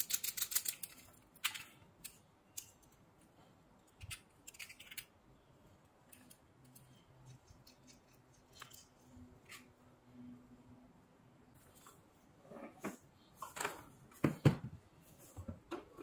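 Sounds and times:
small sharp clicks and rattles: 0:00.0 - 0:03.0.

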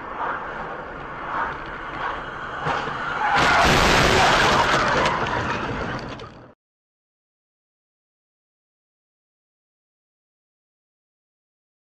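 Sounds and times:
car road noise: 0:00.0 - 0:06.6
car crash impact and debris: 0:02.7 - 0:06.6.

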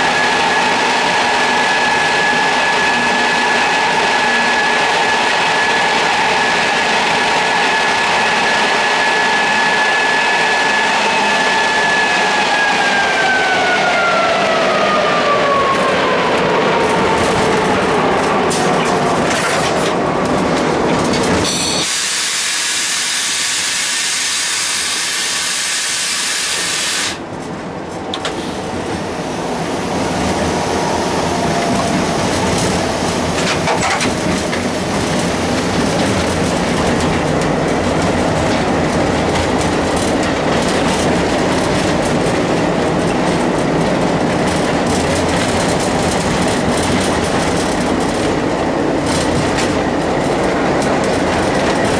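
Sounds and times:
diesel locomotive engine running: 0:00.0 - 0:51.9
wheels clattering over rail joints: 0:16.8 - 0:21.8, 0:30.0 - 0:51.9
loud hiss: 0:21.5 - 0:27.2.

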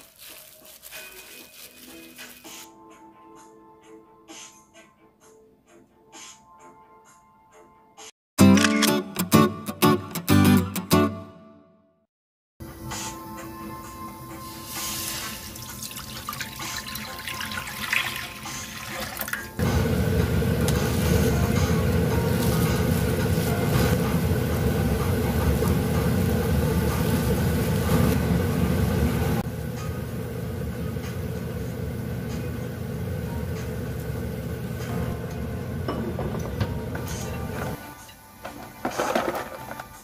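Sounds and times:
broth pouring into pot: 0:14.5 - 0:34.8.

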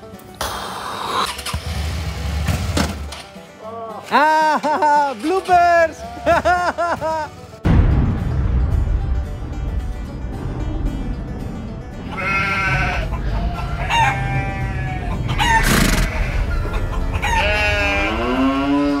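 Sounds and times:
background music: 0:00.0 - 0:19.0
rooster crowing: 0:12.7 - 0:16.2, 0:17.0 - 0:19.0.

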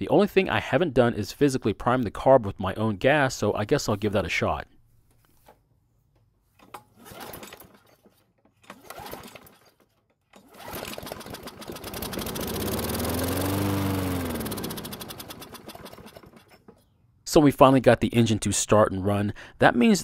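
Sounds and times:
pull cord being pulled: 0:06.6 - 0:16.9
lawn mower engine starting: 0:06.6 - 0:17.0.

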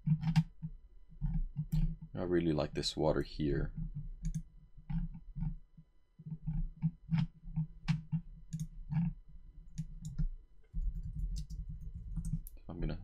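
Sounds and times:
computer mouse clicking: 0:03.2 - 0:05.6, 0:06.2 - 0:12.6.

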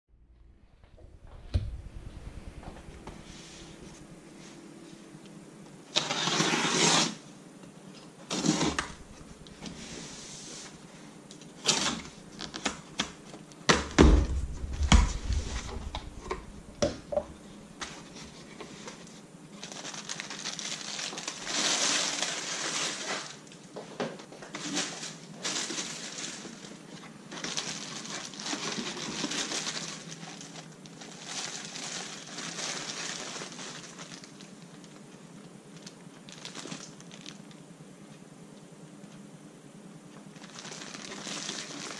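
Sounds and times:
box cutter slicing tape: 0:06.0 - 0:07.2
plastic bag crinkling: 0:08.3 - 0:10.8, 0:14.0 - 0:23.6, 0:24.5 - 0:35.1, 0:35.7 - 0:37.6, 0:40.3 - 0:41.9.

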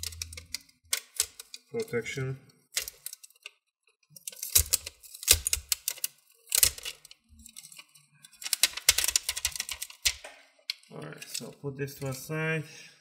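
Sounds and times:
plastic sheet crackling as peeled: 0:04.3 - 0:10.2.

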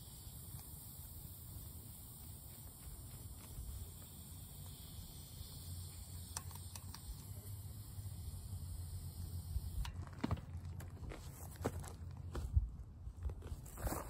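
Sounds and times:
air hissing from tyre valve: 0:00.0 - 0:10.0.

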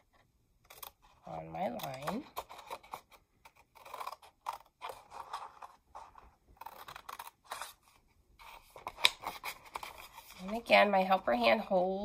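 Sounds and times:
scissors snipping paper: 0:00.6 - 0:07.9.

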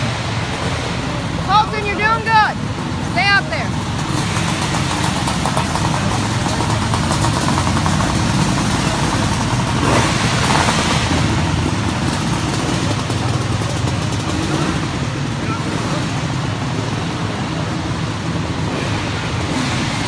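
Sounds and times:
race car engines running: 0:00.0 - 0:20.0.

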